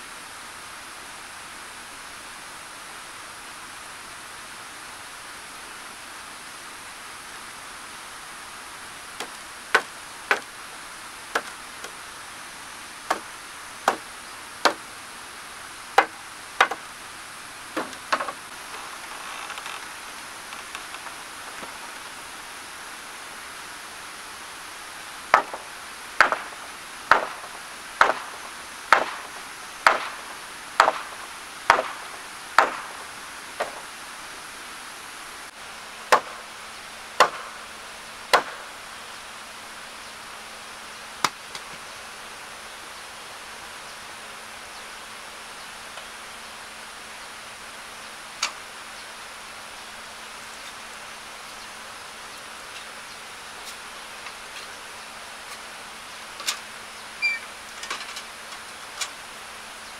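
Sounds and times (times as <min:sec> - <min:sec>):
steady hiss: 0:00.0 - 0:59.9
hammer blows on timber: 0:13.1 - 0:14.8, 0:16.0 - 0:16.9, 0:25.3 - 0:33.9.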